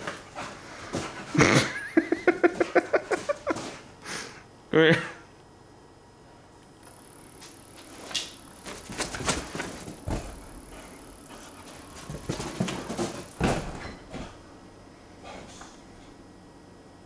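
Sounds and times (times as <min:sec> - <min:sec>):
dog scrambling and thudding: 0:00.0 - 0:01.7, 0:08.6 - 0:14.5
heavy thumps: 0:08.6 - 0:14.5.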